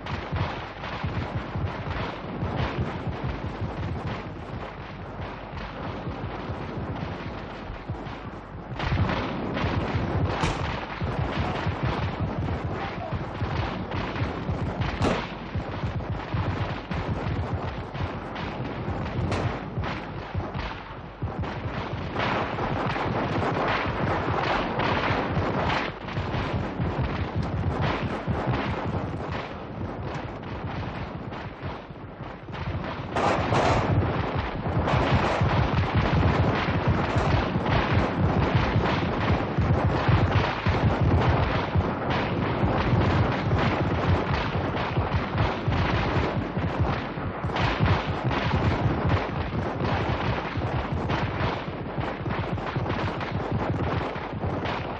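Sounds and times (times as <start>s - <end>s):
continuous gunfire: 0.0s - 54.9s.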